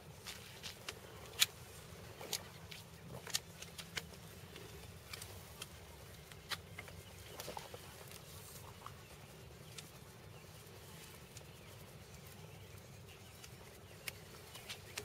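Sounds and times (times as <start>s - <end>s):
pruning shears snipping: 13.4s - 15.0s.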